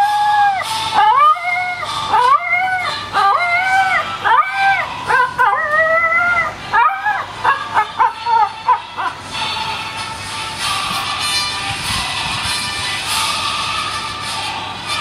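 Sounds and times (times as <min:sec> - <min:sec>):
dog howling: 0:00.0 - 0:09.2
dog yipping: 0:00.3 - 0:09.2.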